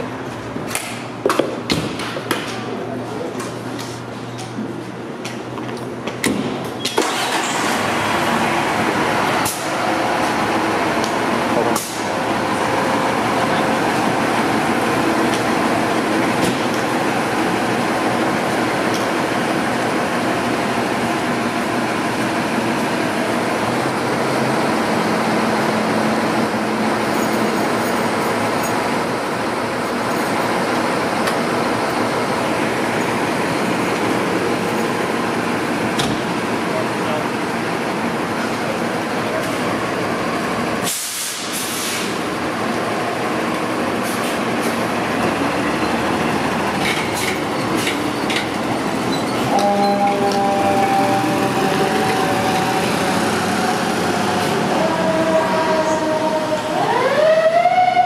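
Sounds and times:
diesel engine rumbling: 2.6s - 57.7s
air hiss burst: 40.8s - 42.2s.

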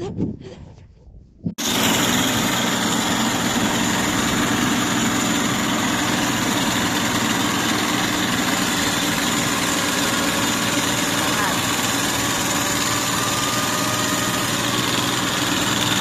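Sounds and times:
combine harvester engine drone: 1.6s - 16.0s.

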